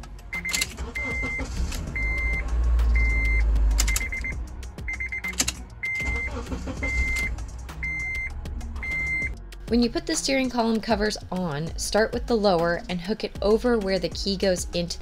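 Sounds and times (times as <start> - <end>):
car engine starting and running: 0.0 - 11.7
car warning chime beeping: 0.3 - 9.4.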